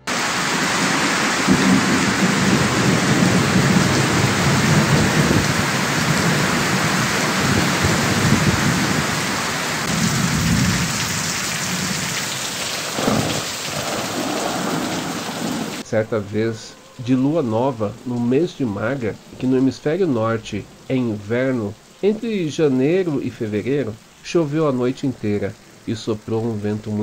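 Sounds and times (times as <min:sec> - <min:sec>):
heavy rain pouring: 0:00.0 - 0:27.0
low thunder rumbling: 0:00.1 - 0:15.8.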